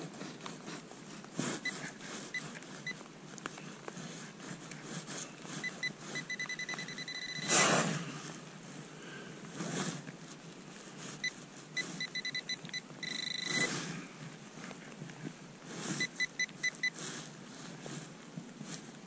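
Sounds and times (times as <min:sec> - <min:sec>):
digging tool scraping soil: 0:00.0 - 0:03.0, 0:03.6 - 0:08.4, 0:09.5 - 0:14.1
metal detector beeping: 0:05.6 - 0:07.7, 0:11.2 - 0:13.8, 0:15.9 - 0:17.0.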